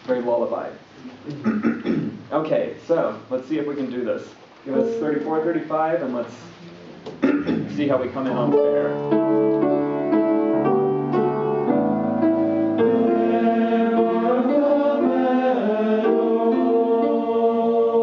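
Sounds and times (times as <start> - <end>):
piano accompaniment: 8.0 - 18.0
men's choir singing in parts: 12.8 - 18.0.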